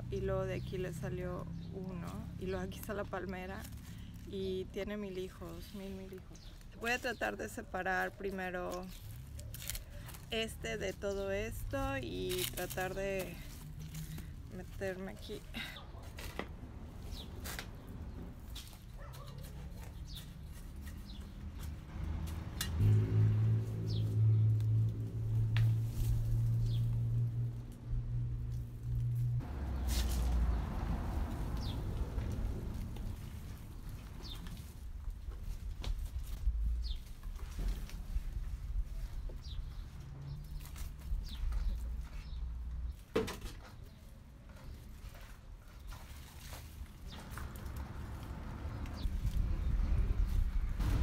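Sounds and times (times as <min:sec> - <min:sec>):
small birds chirping: 0:00.2 - 0:16.2, 0:17.0 - 0:21.8, 0:25.8 - 0:26.9, 0:31.4 - 0:32.3, 0:33.0 - 0:34.9, 0:36.4 - 0:38.1, 0:38.8 - 0:43.0
hands digging in soil: 0:02.0 - 0:22.5, 0:29.2 - 0:39.2
plastic pot rustling and scraping: 0:02.0 - 0:22.6, 0:28.5 - 0:51.0.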